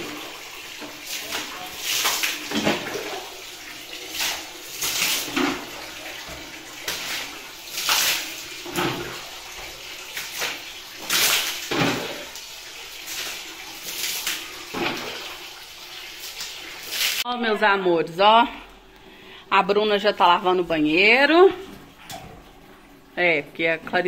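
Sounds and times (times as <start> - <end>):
water splashing: 0.0 - 17.3.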